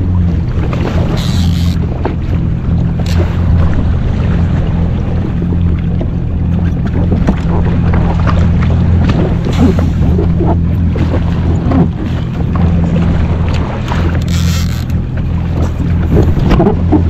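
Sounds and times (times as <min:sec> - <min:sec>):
jet ski engine humming: 0:00.0 - 0:17.0
water splashing against hull: 0:00.0 - 0:17.0
wind buffeting microphone: 0:00.0 - 0:17.0.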